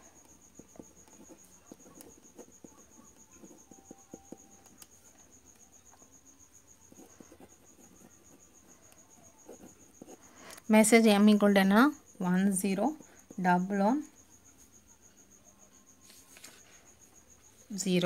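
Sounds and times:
pen scratching on paper: 0:00.3 - 0:05.6, 0:06.8 - 0:10.3.

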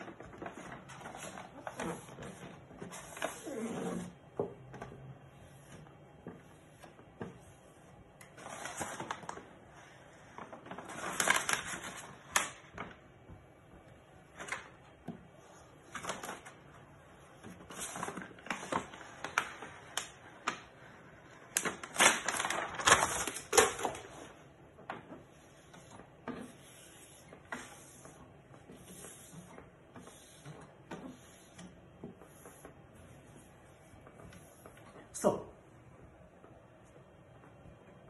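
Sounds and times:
paper backing crinkling: 0:00.0 - 0:04.0, 0:08.2 - 0:13.0, 0:15.5 - 0:34.8.

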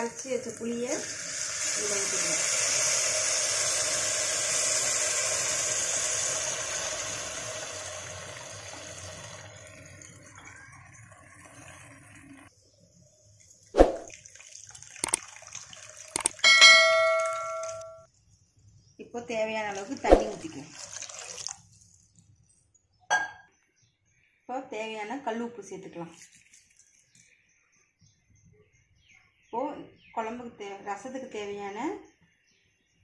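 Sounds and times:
liquid hissing in hot pan: 0:00.4 - 0:12.4
sharp metallic knocks: 0:16.2 - 0:18.1
short bell-like ring: 0:16.4 - 0:18.1.

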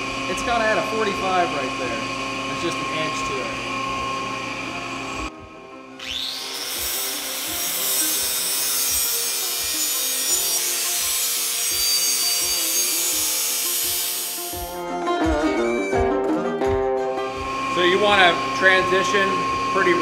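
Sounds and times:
angle grinder grinding metal: 0:06.0 - 0:14.8.

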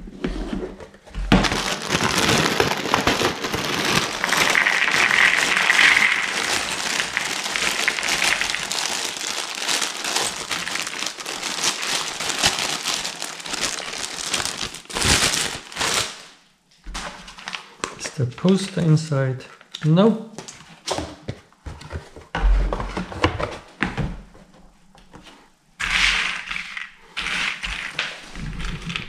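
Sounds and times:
plastic bag crinkling: 0:01.3 - 0:16.4.

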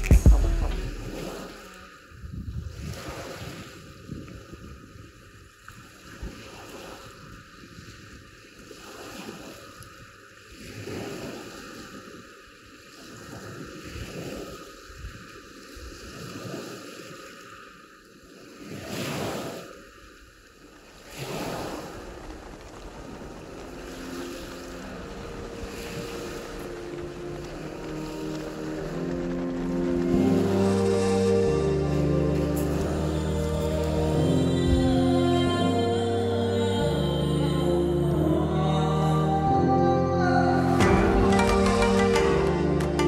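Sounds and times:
soft music: 0:00.0 - 0:01.9, 0:23.6 - 0:43.0
wind on microphone: 0:00.0 - 0:12.3, 0:13.0 - 0:17.2, 0:20.8 - 0:36.1
sea waves washing onto shore: 0:00.0 - 0:36.4.

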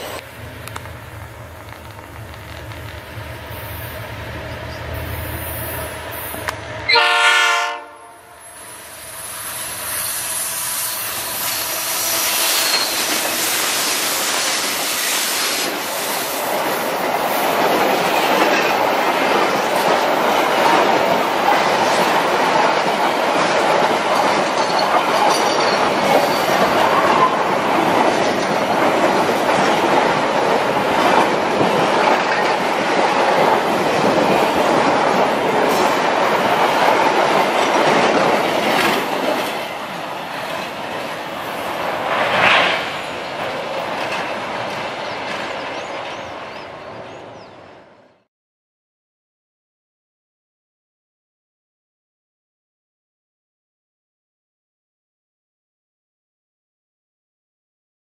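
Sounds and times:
wheel on rail noise: 0:00.0 - 0:07.1, 0:07.8 - 0:47.8
diesel locomotive passing: 0:00.0 - 0:48.3
faint wheel squeal: 0:12.3 - 0:13.1.

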